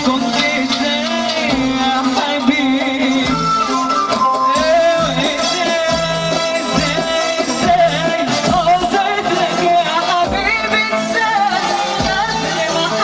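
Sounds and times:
amplified band: 0.0s - 13.0s
woman singing into a microphone: 6.7s - 13.0s.

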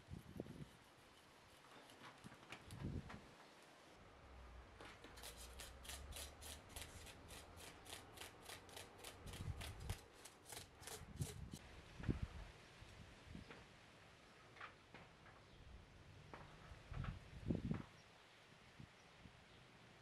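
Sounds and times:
knife scraping fish scales: 5.1s - 11.6s.

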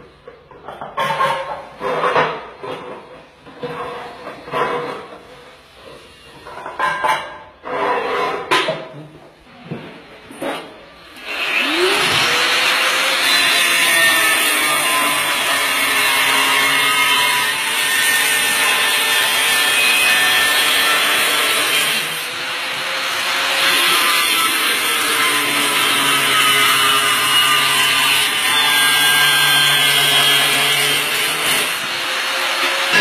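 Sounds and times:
angle grinder cutting tile: 10.4s - 33.0s.

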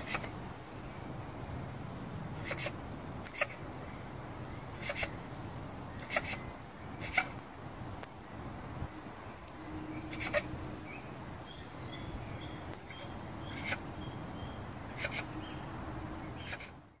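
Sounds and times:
honey badger calls: 0.0s - 0.4s, 2.3s - 3.7s, 4.6s - 5.2s, 5.9s - 7.4s, 10.0s - 10.6s, 11.9s - 15.6s, 16.3s - 16.8s
low background noise: 0.0s - 17.0s.

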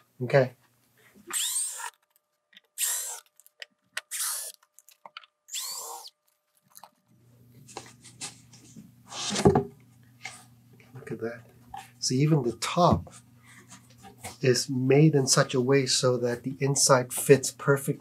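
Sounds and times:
cordless drill whirring: 1.3s - 2.0s, 2.8s - 3.3s, 4.1s - 4.6s, 5.5s - 6.1s.

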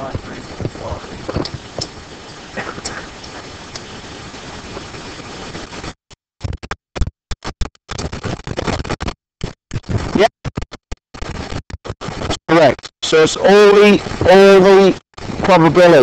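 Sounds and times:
steady background hiss: 0.0s - 5.8s, 12.5s - 16.0s.

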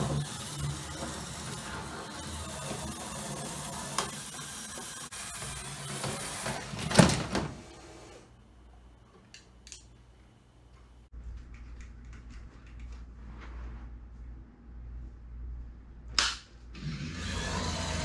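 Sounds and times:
small electric motors whirring: 0.0s - 6.8s, 16.8s - 18.0s.

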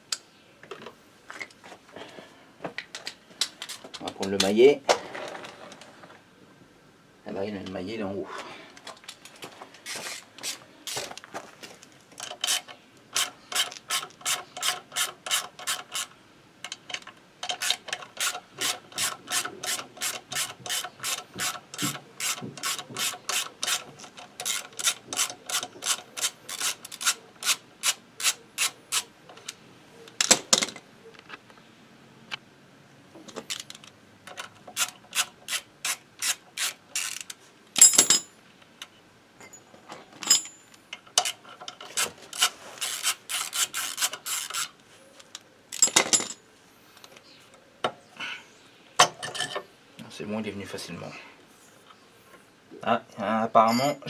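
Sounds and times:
ratchet wrench clicking: 34.8s - 37.4s, 42.4s - 44.7s.

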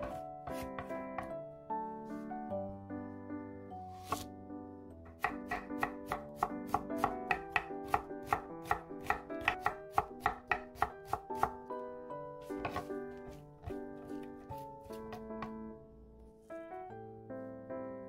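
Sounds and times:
soft background music: 0.0s - 18.0s
knife knocking on cutting board: 12.6s - 12.9s.

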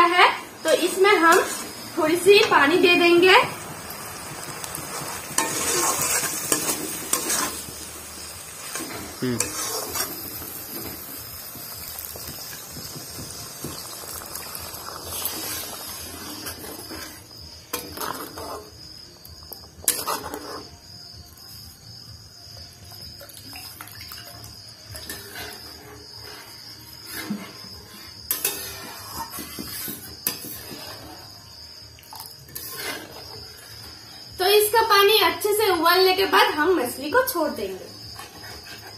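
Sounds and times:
paste sizzling in a pan: 0.0s - 38.9s
metal spatula scraping: 0.7s - 1.8s, 4.9s - 11.1s, 14.8s - 18.8s, 19.8s - 20.8s, 24.9s - 31.4s, 32.4s - 34.0s, 38.2s - 38.9s.

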